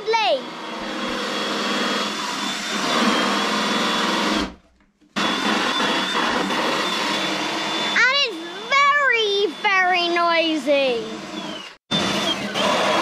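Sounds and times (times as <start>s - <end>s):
electric drill whining: 0.0s - 4.6s, 5.2s - 13.0s.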